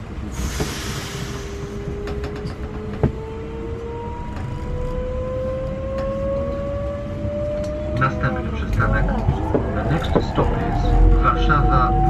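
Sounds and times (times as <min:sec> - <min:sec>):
air hiss: 0:00.3 - 0:01.8.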